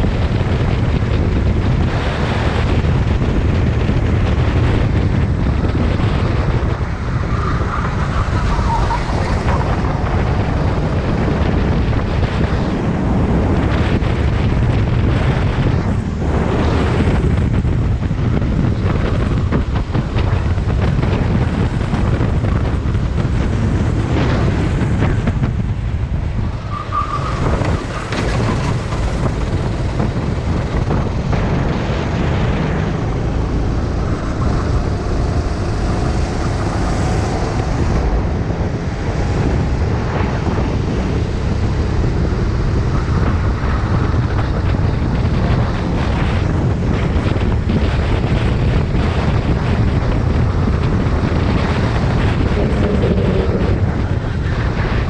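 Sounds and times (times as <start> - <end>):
wind buffeting microphone: 0.0 - 55.0
kart engine running: 27.0 - 55.0.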